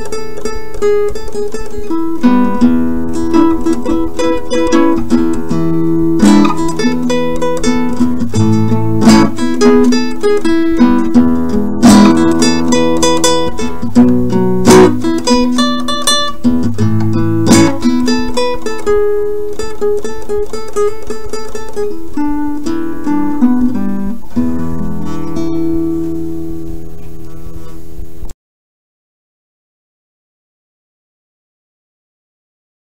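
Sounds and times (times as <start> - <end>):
acoustic guitar music: 0.0 - 28.3.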